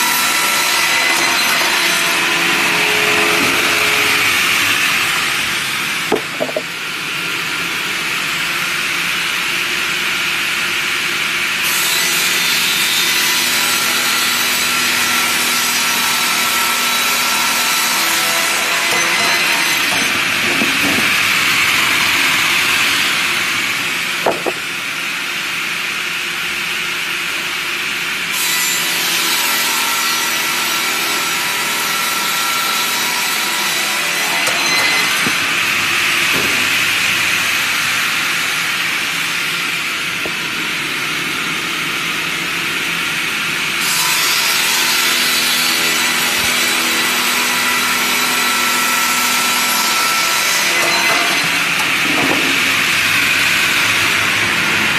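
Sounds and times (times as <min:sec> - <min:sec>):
whine of saw motor: 0:01.2 - 0:06.5.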